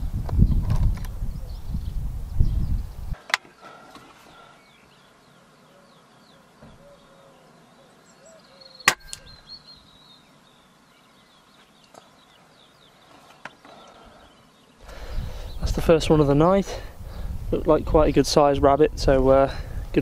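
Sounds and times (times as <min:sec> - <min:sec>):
air rifle shot: 0:08.9 - 0:09.2.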